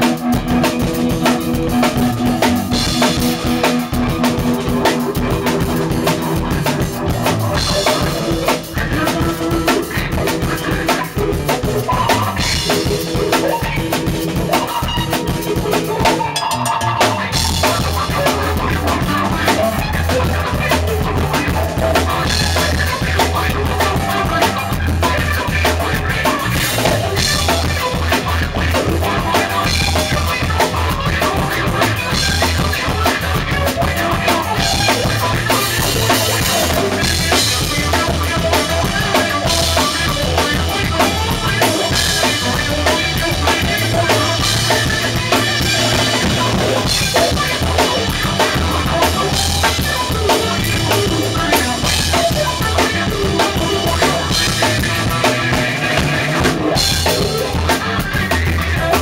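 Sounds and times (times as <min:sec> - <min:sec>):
drum kit playing rock beat: 0:00.0 - 0:59.0
guitar playing: 0:00.0 - 0:59.0.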